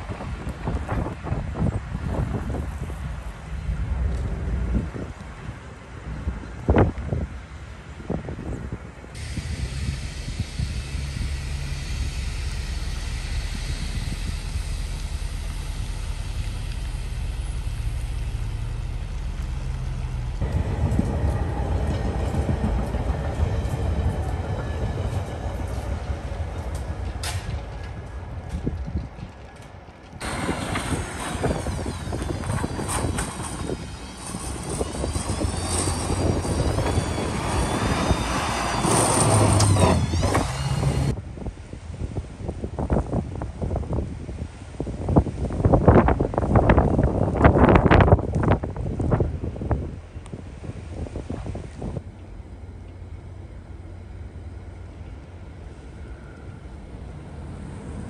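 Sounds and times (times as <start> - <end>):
low rumble of wind: 0.0 - 58.0
train running past: 8.8 - 41.9, 45.0 - 58.0
truck with sliding squeals: 30.2 - 41.2.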